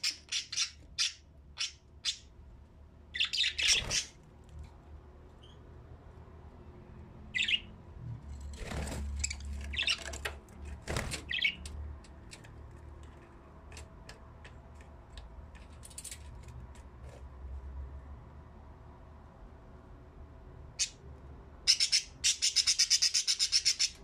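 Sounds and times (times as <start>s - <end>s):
budgerigars chirping and squawking: 0.0s - 2.3s, 3.2s - 4.2s, 7.4s - 7.7s, 9.2s - 10.1s, 11.2s - 11.6s, 21.7s - 24.0s.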